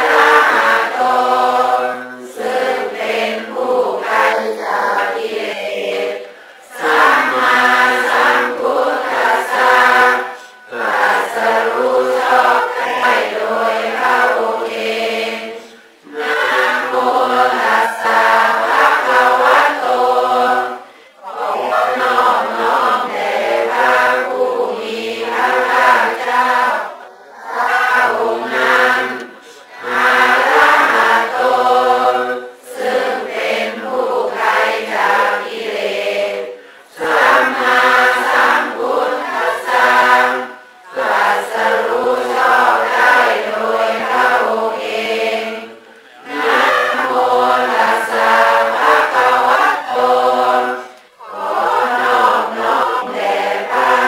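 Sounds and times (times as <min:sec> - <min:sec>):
voices chanting together: 0:00.0 - 0:54.0.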